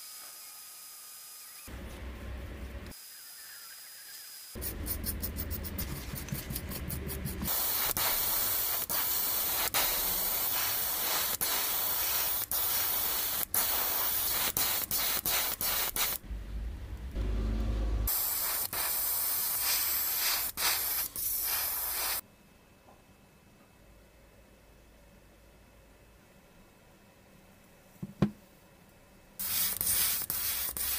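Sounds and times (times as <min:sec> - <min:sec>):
airbrush spraying hiss: 0:04.1 - 0:16.2, 0:18.1 - 0:22.2, 0:29.4 - 0:30.9
scratchy brush strokes: 0:04.6 - 0:11.3.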